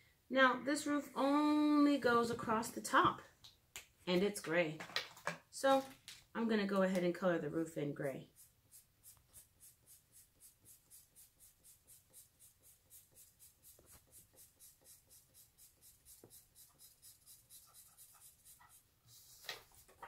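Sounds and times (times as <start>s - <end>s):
marker scribbling on paper: 8.0s - 20.0s.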